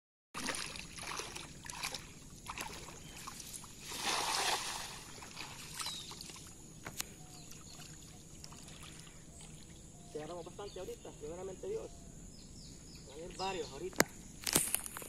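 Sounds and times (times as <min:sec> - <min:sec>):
cast net splashing on water: 0:00.4 - 0:06.4
person wading in water: 0:00.4 - 0:10.1.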